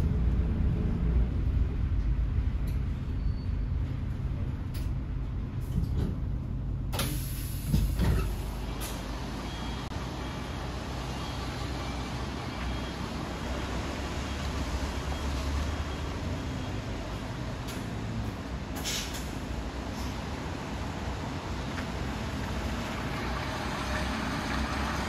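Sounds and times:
bus engine rumbling: 0:00.0 - 0:25.0
compressed air hiss: 0:07.0 - 0:09.0.

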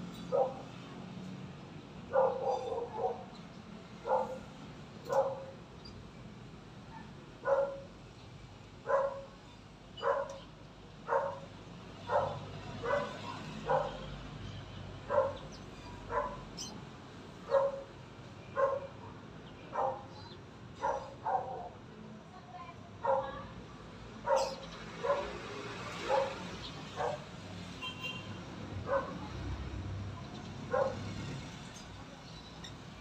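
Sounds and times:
dog barking: 0:00.3 - 0:00.8, 0:02.1 - 0:03.4, 0:04.0 - 0:05.5, 0:07.0 - 0:07.9, 0:08.9 - 0:09.4, 0:10.0 - 0:14.1, 0:15.1 - 0:16.7, 0:17.4 - 0:17.9, 0:18.5 - 0:20.2, 0:20.8 - 0:21.8, 0:23.0 - 0:23.5, 0:24.2 - 0:27.3, 0:28.8 - 0:29.4, 0:30.7 - 0:31.2.

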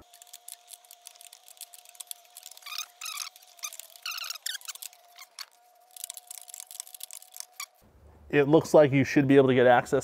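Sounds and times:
squeaky chirps: 0:00.0 - 0:07.8.

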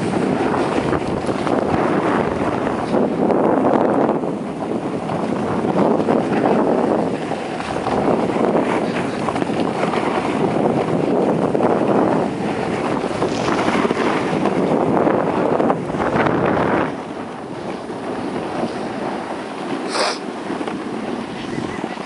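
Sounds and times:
wind buffeting microphone: 0:00.0 - 0:22.0
skis sliding over snow: 0:18.0 - 0:21.1.

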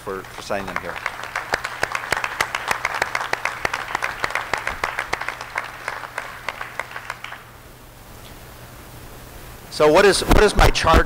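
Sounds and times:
audience applause: 0:00.0 - 0:07.5.

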